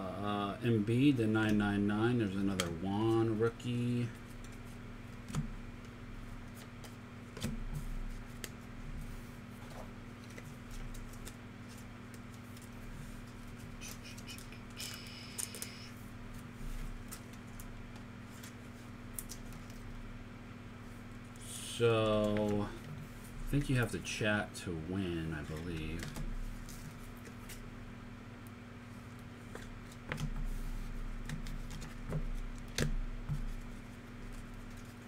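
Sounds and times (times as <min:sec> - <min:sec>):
steady low hum: 0:00.0 - 0:35.0
trading cards flipped through: 0:09.6 - 0:19.8.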